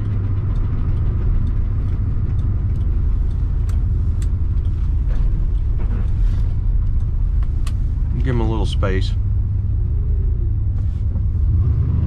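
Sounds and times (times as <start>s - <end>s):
car engine and road rumble: 0.0s - 12.0s.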